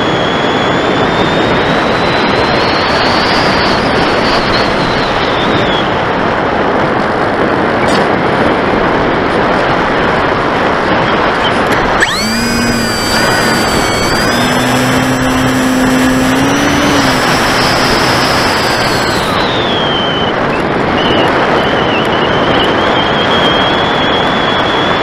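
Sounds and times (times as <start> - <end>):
electric motor whine: 11.6 - 20.0.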